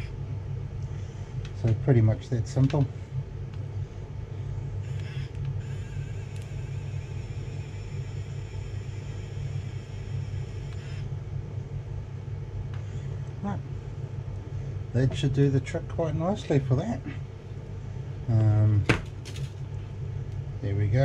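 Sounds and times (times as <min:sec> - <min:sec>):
steady low hum: 0:00.0 - 0:21.0
small motor whirring: 0:04.8 - 0:11.1.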